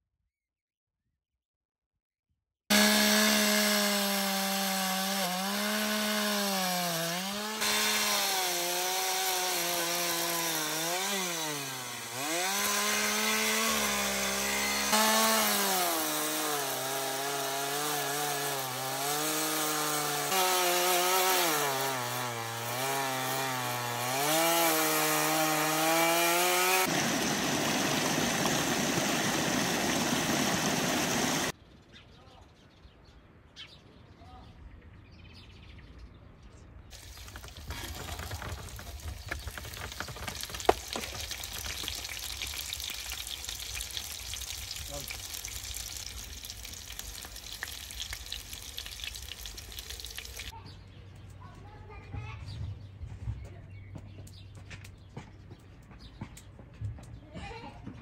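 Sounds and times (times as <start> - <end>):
chainsaw cutting wood: 2.7 - 31.5, 36.9 - 50.5.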